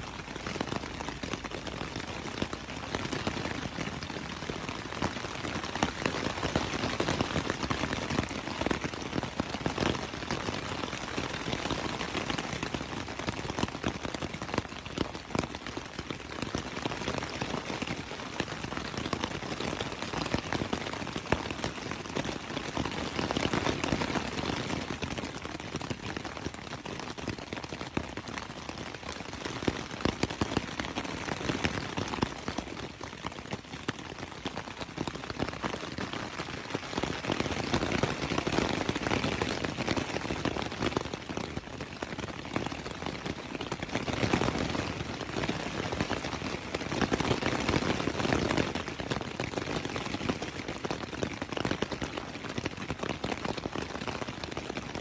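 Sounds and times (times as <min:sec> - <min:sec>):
rain patter on tent fabric: 0:00.0 - 0:55.0.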